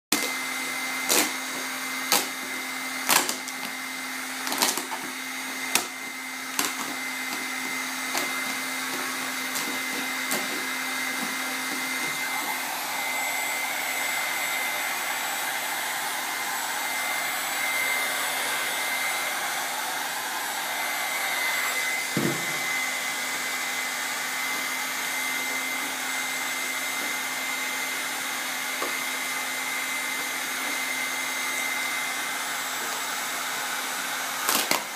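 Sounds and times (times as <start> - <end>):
heat gun blowing with whine: 0.2 - 34.9
knock: 22.1 - 22.7.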